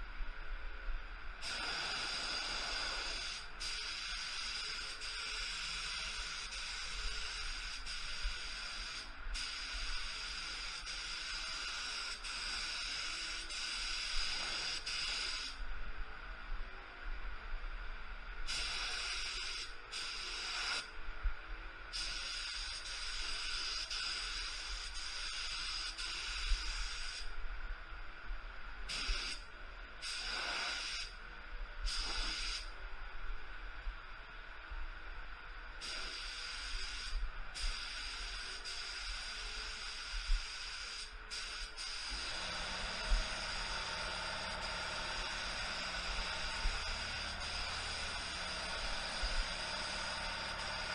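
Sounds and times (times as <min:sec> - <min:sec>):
spray gun hissing: 0:01.4 - 0:15.6, 0:18.5 - 0:20.9, 0:21.9 - 0:27.3, 0:28.9 - 0:31.2, 0:31.9 - 0:32.7, 0:35.8 - 0:50.9.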